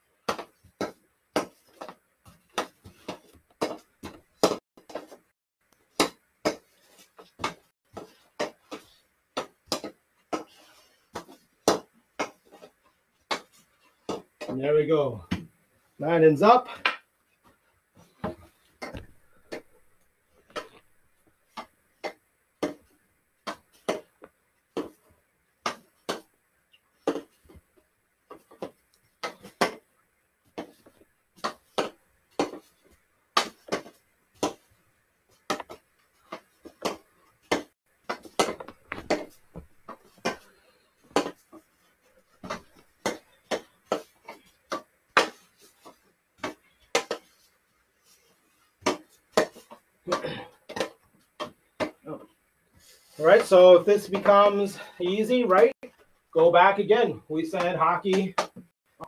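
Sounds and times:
hockey stick tapping ball: 44.7s - 47.3s.

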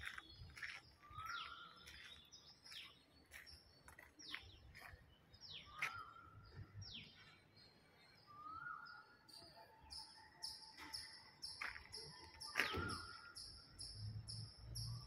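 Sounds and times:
birds chirping: 0.0s - 15.0s
downward-sweeping bird calls: 8.2s - 15.0s.

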